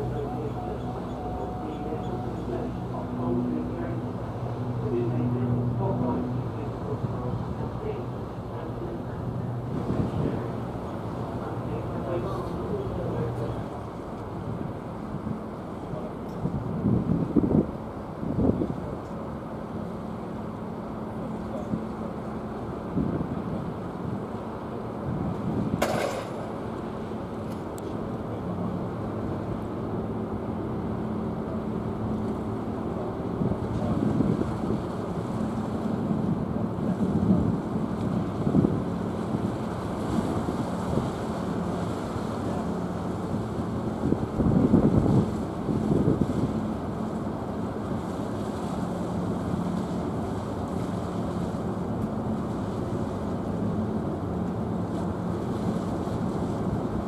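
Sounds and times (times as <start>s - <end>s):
faint steady drone: 0.0s - 16.4s
ship diesel engines rumbling: 0.0s - 57.0s
wind buffeting microphone: 0.8s - 19.0s, 22.8s - 27.0s, 32.7s - 57.0s.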